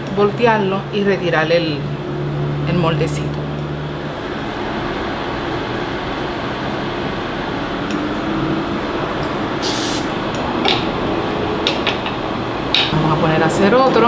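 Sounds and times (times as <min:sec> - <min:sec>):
aerosol spray hiss: 0:09.6 - 0:10.1.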